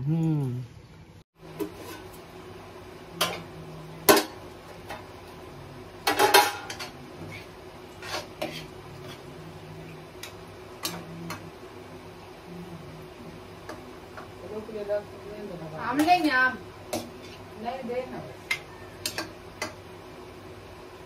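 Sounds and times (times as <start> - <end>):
spoon clinking and scraping pan: 6.0 - 9.3, 18.4 - 19.8.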